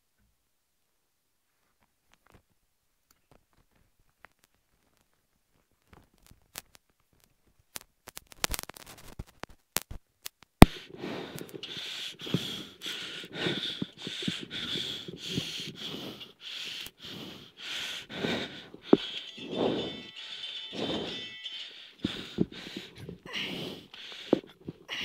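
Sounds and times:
steady rhythmic noise: 10.7 - 24.8.

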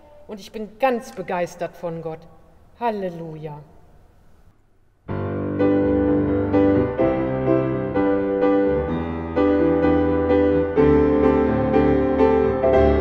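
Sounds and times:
piano chords: 5.1 - 13.0.

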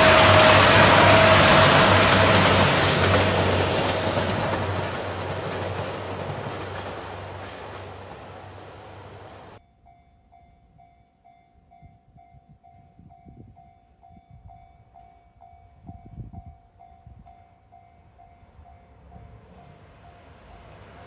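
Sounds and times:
train running noise: 0.0 - 9.6, 15.8 - 21.0
level crossing warning bell: 9.6 - 20.7
wind on microphone: 11.6 - 15.0, 15.7 - 17.5.

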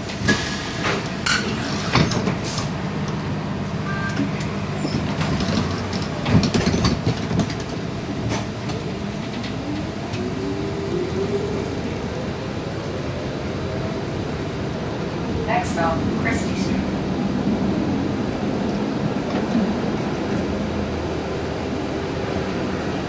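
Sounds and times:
streetcar rumbling on track: 0.0 - 23.0
wheel clicks knocks and rattles: 5.0 - 7.8.

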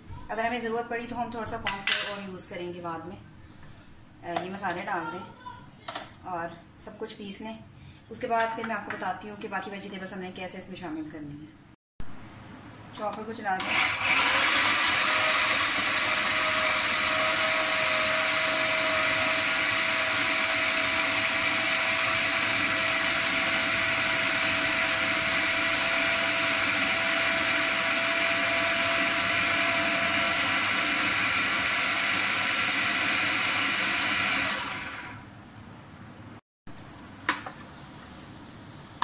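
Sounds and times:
food processor running: 13.6 - 35.3.

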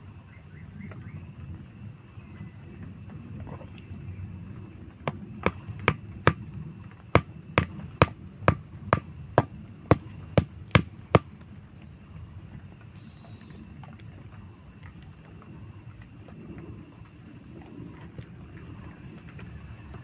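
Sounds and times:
hammer striking wooden stake: 5.1 - 6.5, 7.2 - 11.3.

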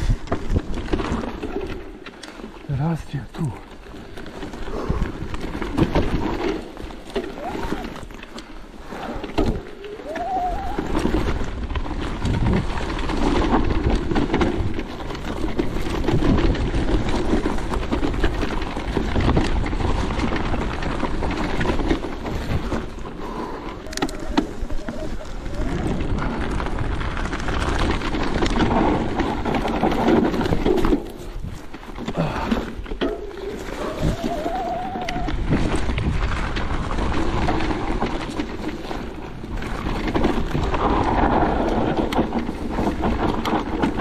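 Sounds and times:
wind buffeting microphone: 0.0 - 1.8, 9.1 - 44.0
bike knocks and rattles: 0.0 - 2.6, 3.7 - 44.0
bike rolling over rough trail: 0.0 - 44.0.

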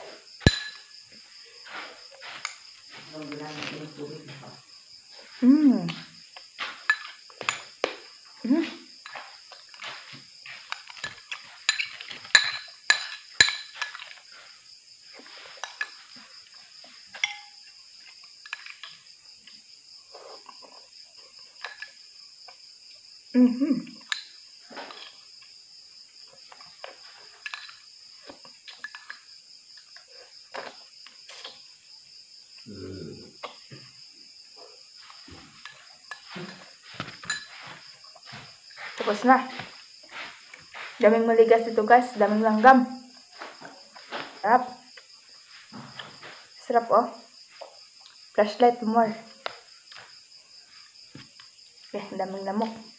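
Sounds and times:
insect chorus: 0.0 - 52.9
metal spoon clinking on bowl: 0.5 - 0.9, 10.9 - 14.1, 17.2 - 17.6, 37.2 - 37.6
eating sounds: 28.2 - 31.8, 32.6 - 41.0, 43.4 - 46.5.

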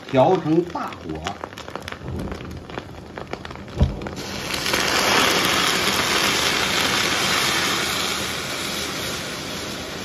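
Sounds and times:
egg sizzling in hot oil: 0.0 - 10.0
water pouring into wok: 3.5 - 10.0
thump: 3.7 - 4.2.

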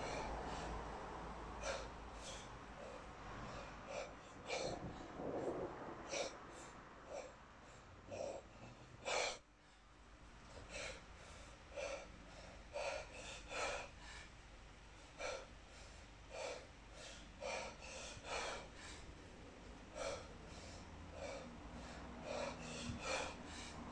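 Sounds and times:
person breathing sharply: 0.0 - 0.9, 1.6 - 5.1, 15.0 - 19.2, 19.8 - 23.9.

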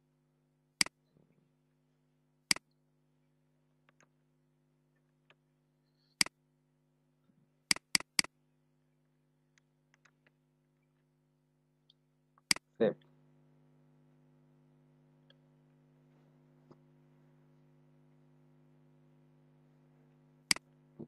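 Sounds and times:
faint steady hum: 0.0 - 21.0
computer mouse clicks: 7.7 - 8.3.

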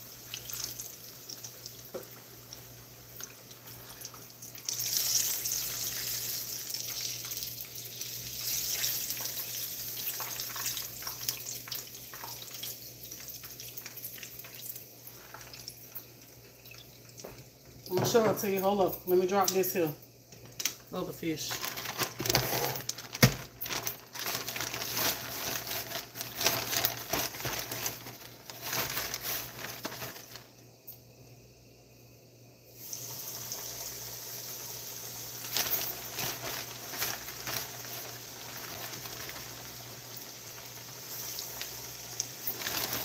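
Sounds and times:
fish sizzling in hot oil: 0.0 - 18.5, 32.7 - 43.0
plastic bag crinkling: 18.1 - 30.6, 35.4 - 43.0.

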